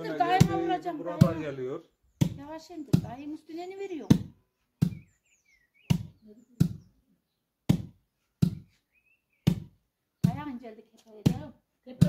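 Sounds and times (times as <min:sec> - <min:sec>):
dull thuds of pounding wheat: 0:04.1 - 0:05.1, 0:05.8 - 0:06.9, 0:07.7 - 0:08.8, 0:09.4 - 0:10.5
faint bird chirps: 0:04.8 - 0:07.4, 0:08.6 - 0:09.6.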